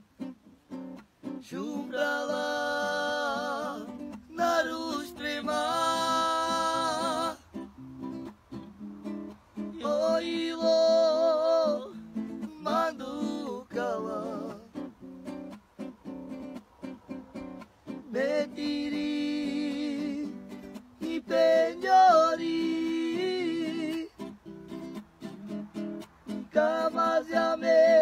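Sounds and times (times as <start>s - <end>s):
guitar accompaniment: 0.0s - 28.0s
person singing with vibrato: 1.3s - 7.7s, 9.7s - 15.0s, 18.0s - 24.3s, 26.4s - 28.0s.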